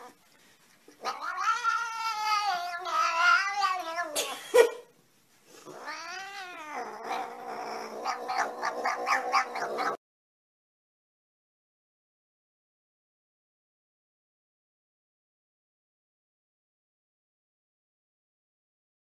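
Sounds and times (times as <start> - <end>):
cat yowling: 1.0 - 4.3, 5.7 - 10.0.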